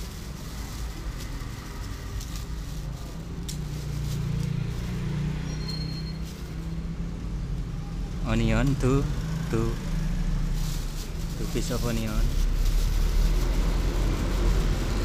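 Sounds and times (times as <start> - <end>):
plastic bag crinkling: 0.0 - 7.0, 10.2 - 15.0
motor vehicle rumble: 0.0 - 15.0.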